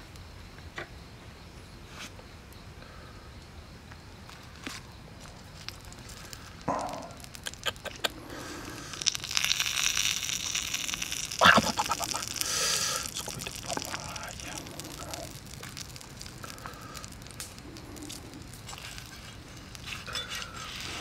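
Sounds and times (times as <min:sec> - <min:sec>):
clicks and crackles of tearing meat: 0:05.5 - 0:21.0
hissing: 0:05.6 - 0:21.0.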